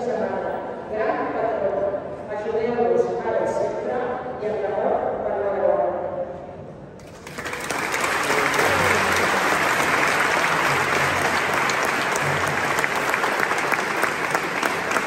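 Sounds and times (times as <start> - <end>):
crowd applauding: 7.0 - 15.0.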